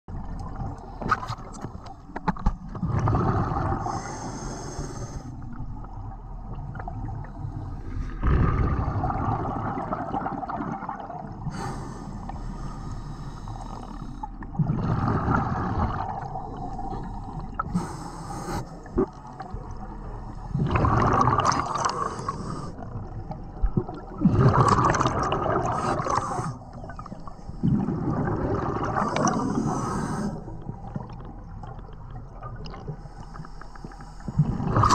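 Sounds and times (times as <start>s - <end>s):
exhaled bubbles gurgling: 2.6s - 12.6s, 13.2s - 34.9s
regulator inhale hiss: 3.9s - 5.4s, 11.5s - 14.3s, 16.9s - 18.9s, 22.0s - 22.8s, 25.8s - 27.6s, 29.1s - 30.6s.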